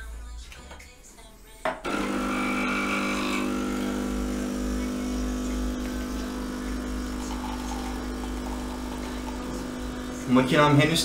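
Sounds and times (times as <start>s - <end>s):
coffee running into a mug: 1.9s - 11.0s
espresso machine pump buzzing: 1.9s - 11.0s.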